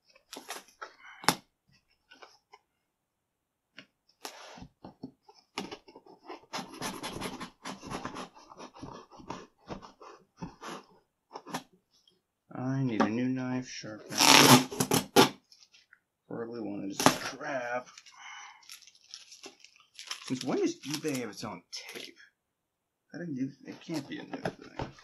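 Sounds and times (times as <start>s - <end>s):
cardboard box scraping: 5.8s - 11.7s
knife cutting packing tape: 14.1s - 15.4s.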